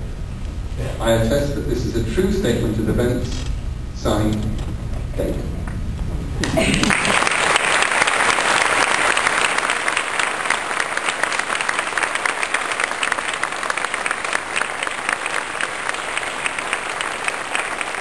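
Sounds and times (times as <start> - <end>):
large audience applauding: 6.4 - 18.0.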